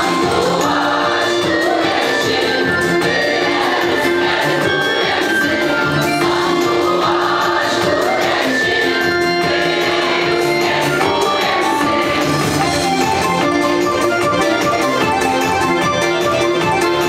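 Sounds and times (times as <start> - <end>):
mixed choir singing: 0.0 - 13.2
accordion: 0.0 - 17.0.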